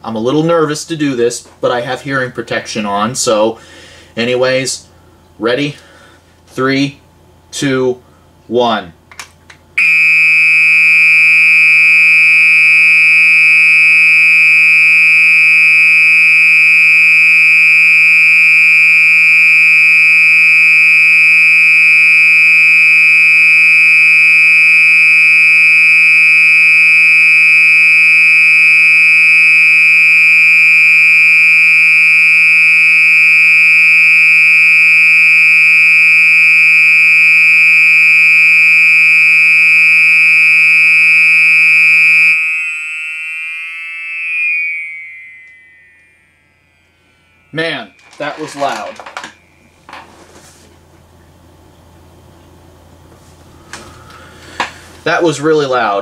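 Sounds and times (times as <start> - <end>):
fire alarm horn tone: 9.8 - 51.7.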